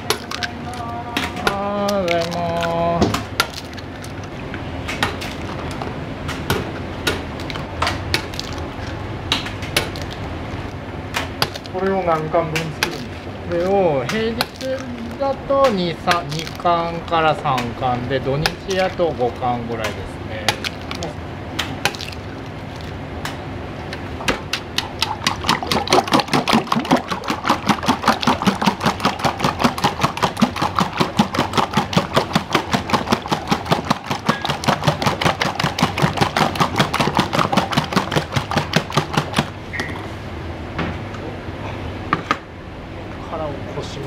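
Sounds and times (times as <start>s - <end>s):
kitchen background: 0.0s - 10.6s.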